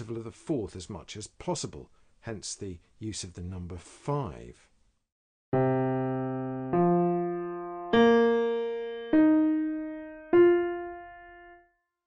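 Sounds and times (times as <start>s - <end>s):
electric piano single notes: 5.6s - 11.6s.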